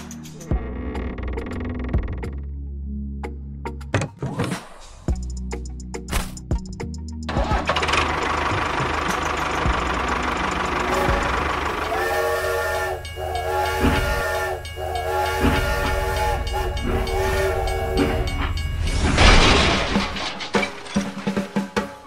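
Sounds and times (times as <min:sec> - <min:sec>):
steam whistle blasts: 0:10.8 - 0:18.6.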